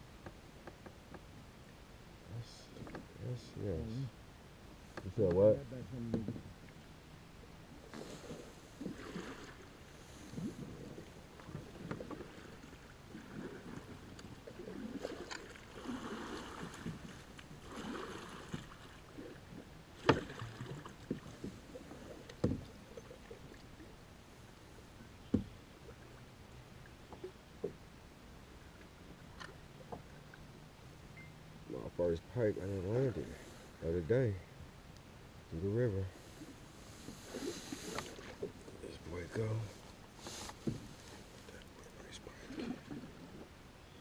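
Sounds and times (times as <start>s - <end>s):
light water noise: 0.0s - 44.0s
sharp knocks on kayak: 20.0s - 20.3s, 22.4s - 22.7s
faint rustling: 36.1s - 43.5s.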